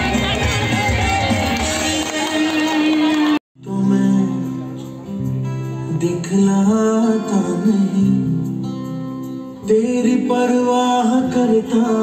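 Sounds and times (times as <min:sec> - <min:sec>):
person singing: 0:00.0 - 0:12.0
strummed guitar: 0:03.6 - 0:12.0.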